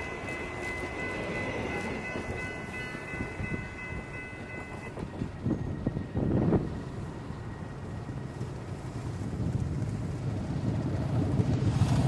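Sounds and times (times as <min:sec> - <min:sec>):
high ringing tones: 0:00.0 - 0:09.0
train rumbling by: 0:00.0 - 0:12.0.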